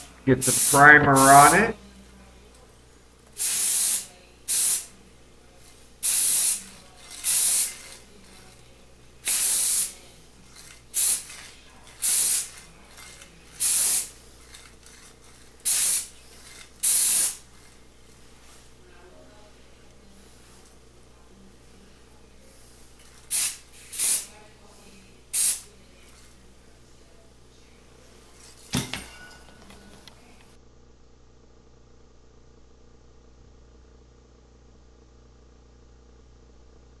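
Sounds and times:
spray can bursts: 0:00.0 - 0:01.7, 0:03.4 - 0:04.9, 0:06.0 - 0:08.6, 0:09.2 - 0:17.8, 0:22.6 - 0:24.4, 0:25.3 - 0:26.3.

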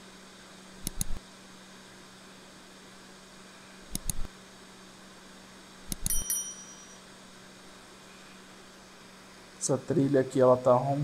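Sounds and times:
low electrical hum: 0:00.0 - 0:11.0
mouse clicks: 0:00.8 - 0:01.2, 0:03.9 - 0:04.3, 0:05.9 - 0:06.2
notification bell ding: 0:06.1 - 0:07.0.

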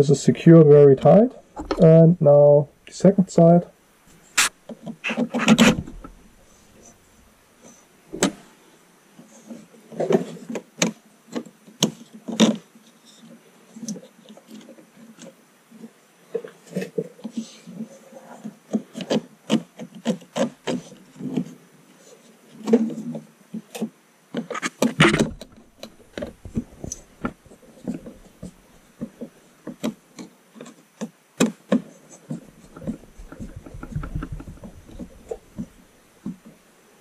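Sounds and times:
plastic parts clicking and scraping: 0:04.4 - 0:07.0, 0:16.3 - 0:21.6, 0:22.5 - 0:36.5.

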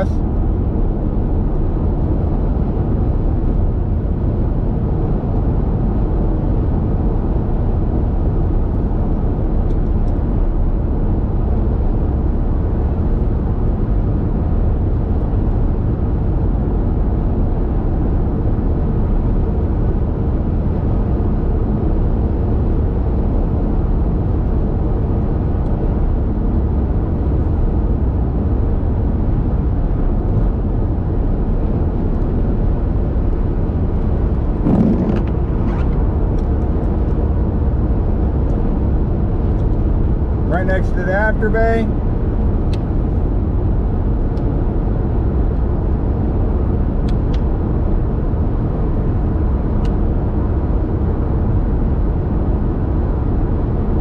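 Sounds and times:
car interior highway rumble: 0:00.0 - 0:54.0.

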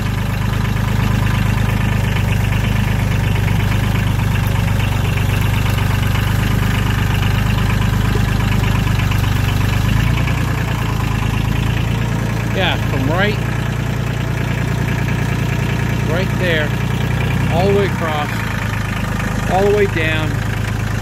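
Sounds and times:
tractor engine running: 0:00.0 - 0:21.0.

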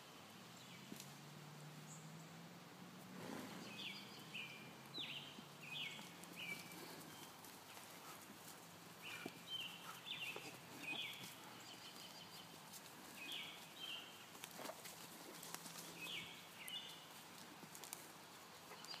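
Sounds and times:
hooves thudding on dirt: 0:03.0 - 0:19.0
bird chirping: 0:03.5 - 0:07.5, 0:09.0 - 0:14.4, 0:15.2 - 0:17.2, 0:18.6 - 0:19.0.

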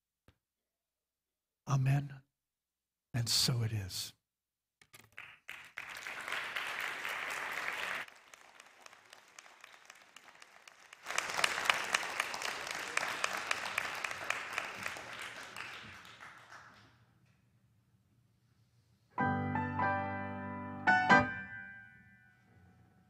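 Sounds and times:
congregation applauding: 0:05.0 - 0:17.1.

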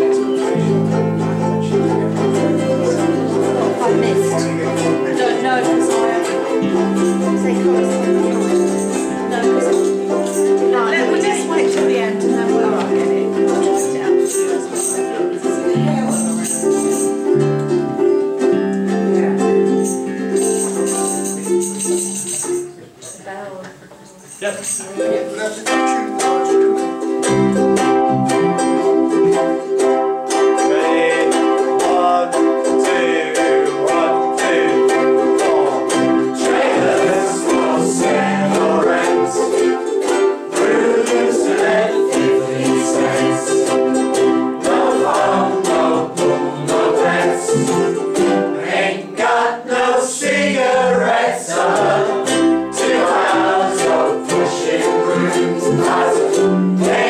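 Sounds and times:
voices singing along: 0:00.0 - 0:15.2, 0:30.3 - 0:57.0
acoustic bass guitar: 0:00.0 - 0:24.2, 0:25.1 - 0:57.0
ukuleles strumming: 0:00.0 - 0:57.0.

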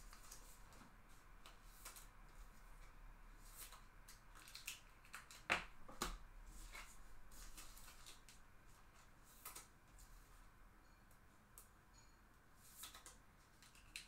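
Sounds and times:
cards rustling: 0:06.7 - 0:08.4.

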